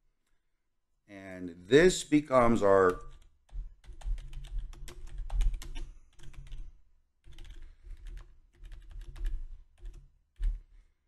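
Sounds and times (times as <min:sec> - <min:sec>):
computer keyboard typing: 0:02.9 - 0:10.7.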